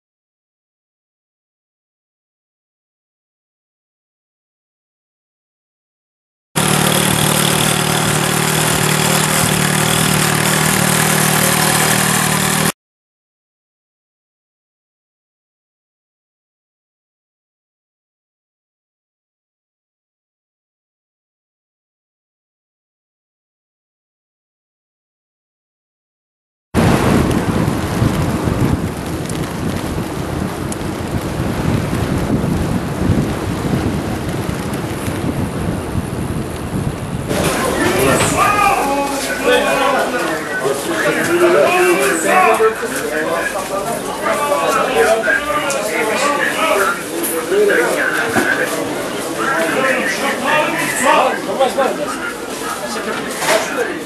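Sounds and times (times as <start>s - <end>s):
motorcycle engine running: 6.6s - 12.7s
road noise: 6.6s - 12.7s, 26.8s - 54.0s
wind rush: 26.8s - 39.9s.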